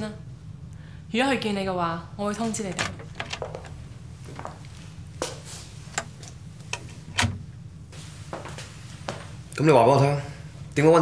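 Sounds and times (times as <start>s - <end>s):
steady low hum: 0.0s - 11.0s
footsteps on hard floor: 3.4s - 5.7s, 8.0s - 9.4s.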